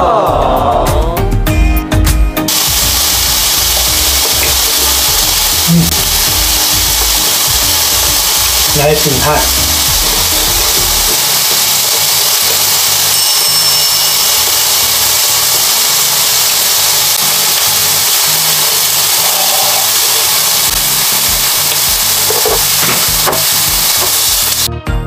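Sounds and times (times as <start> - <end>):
background music: 0.0 - 13.2, 20.6 - 25.0
meat sizzling on a grill: 2.5 - 24.7.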